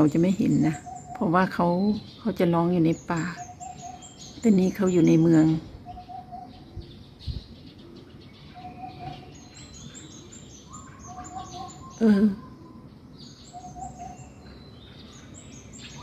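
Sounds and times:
small birds chirping: 0.0s - 16.0s
hoopoe hooting call: 10.7s - 12.9s, 13.5s - 14.4s.

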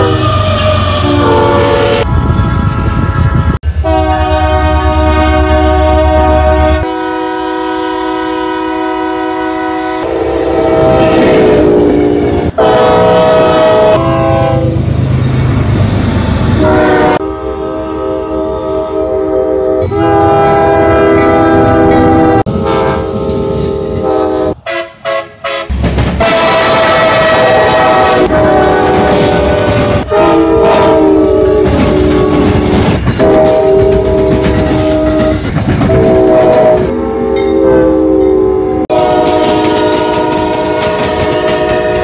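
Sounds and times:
locomotive air horns: 0.0s - 14.9s, 16.6s - 42.0s.

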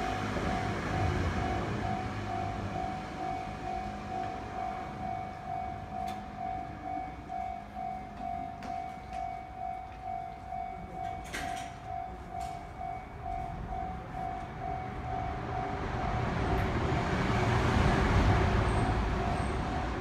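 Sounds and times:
electric train passing: 0.0s - 20.0s
level crossing warning bell: 0.0s - 20.0s.

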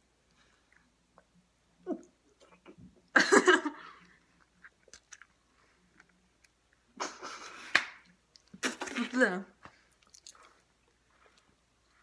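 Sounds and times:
mouth clicks and smacks: 4.4s - 9.0s, 9.6s - 11.5s
chewing and sucking lemon: 9.9s - 12.0s.

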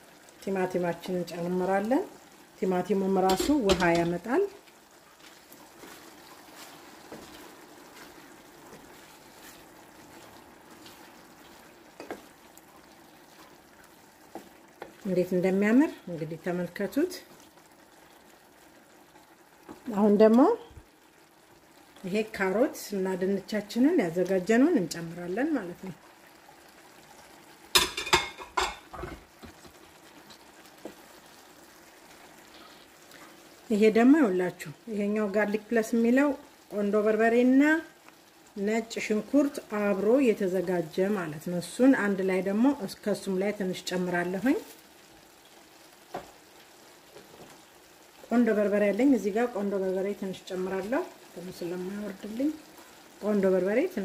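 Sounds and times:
sauce sizzling in a frying pan: 0.0s - 54.0s
spatula scraping skillet: 5.2s - 12.3s
spatula knocking on pan: 27.7s - 29.7s.

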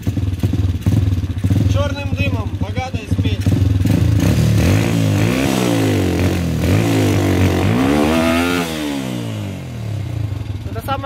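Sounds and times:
small motorcycle engine revving: 3.1s - 11.0s.

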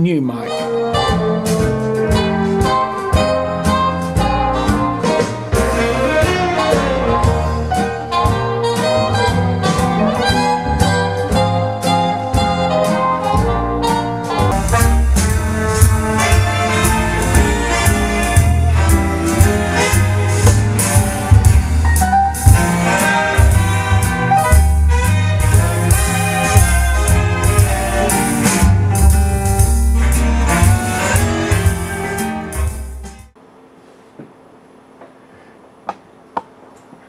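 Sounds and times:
music with pulsing bass line: 13.4s - 33.3s.

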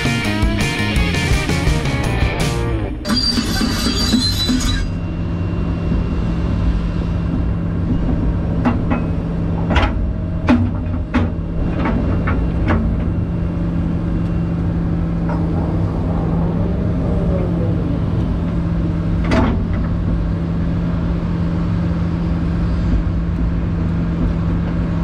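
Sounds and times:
excavator diesel engine running: 5.1s - 25.0s.

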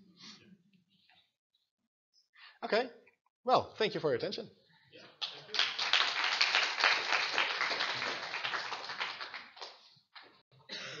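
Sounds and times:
audience applauding: 5.2s - 9.9s.

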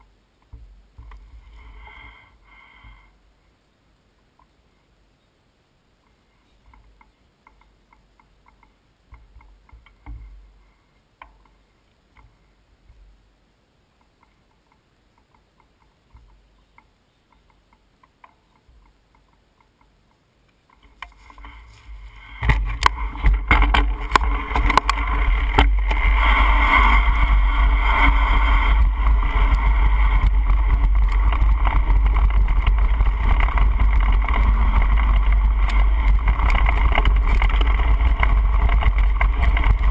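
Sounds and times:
faint clicks: 6.0s - 10.6s, 13.9s - 39.9s
bike rattling over ground: 20.8s - 39.9s
wind noise on microphone: 20.8s - 39.9s.

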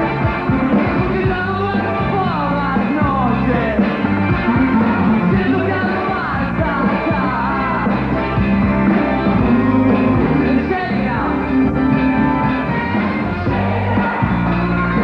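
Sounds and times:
rock band playing: 0.0s - 15.0s
person singing: 0.8s - 11.7s.

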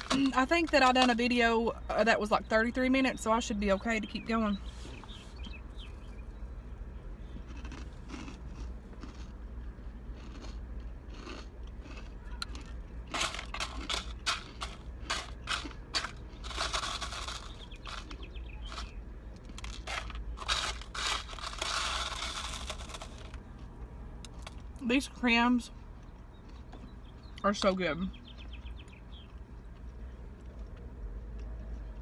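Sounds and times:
food packaging crinkling: 12.6s - 23.4s.

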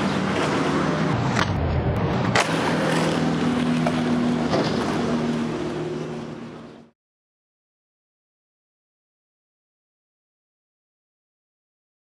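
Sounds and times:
low engine hum: 0.0s - 7.0s
street traffic: 0.0s - 7.0s.

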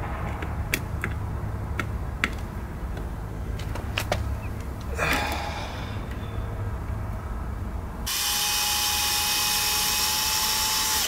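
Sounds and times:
steady low rumble: 0.0s - 8.1s.

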